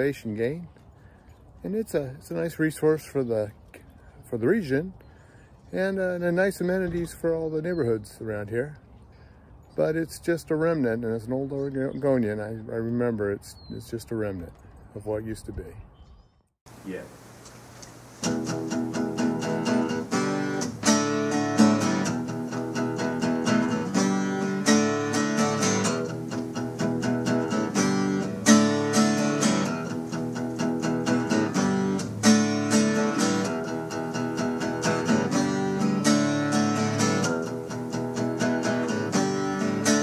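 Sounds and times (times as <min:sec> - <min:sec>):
strummed acoustic guitar music: 0:18.0 - 0:40.0.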